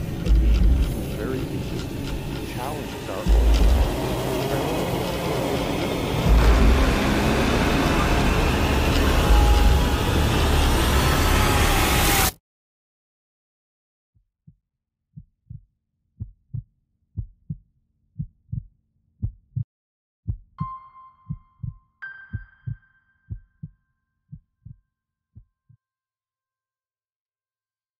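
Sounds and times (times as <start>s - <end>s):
slow heartbeat thumps: 0.0s - 4.4s, 5.4s - 10.0s, 14.4s - 17.6s, 18.2s - 20.7s, 21.3s - 24.8s.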